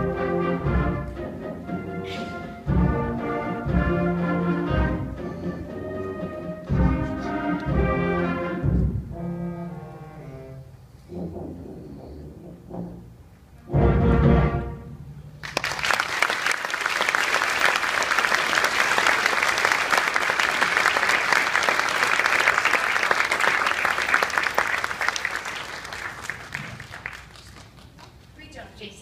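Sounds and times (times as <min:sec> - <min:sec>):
audience applauding: 0:15.4 - 0:28.3.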